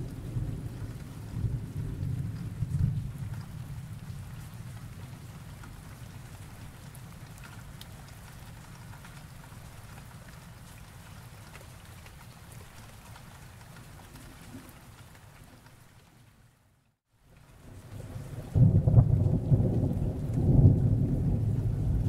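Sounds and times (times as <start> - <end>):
low rumble of thunder: 0.0 - 7.7, 17.6 - 22.0
steady rain: 0.0 - 22.0.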